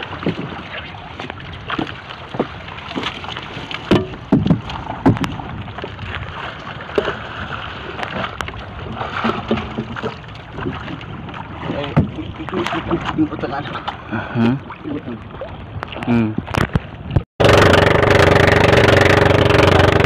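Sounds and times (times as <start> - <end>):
water splashing against boat hull: 0.0 - 20.0
sharp knocks: 3.9 - 5.4.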